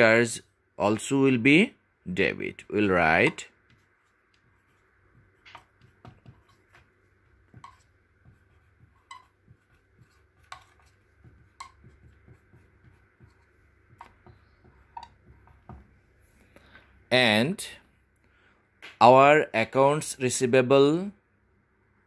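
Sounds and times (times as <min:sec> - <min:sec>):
marker pen writing on whiteboard: 0:02.6 - 0:16.0
marker squeaks: 0:02.9 - 0:06.8, 0:07.5 - 0:15.4.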